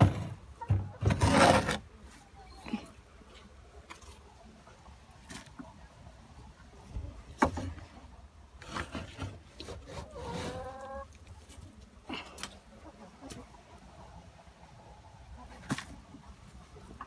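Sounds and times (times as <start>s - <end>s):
shovel scraping wooden floor: 0.0s - 0.4s, 1.0s - 1.9s, 8.6s - 10.8s.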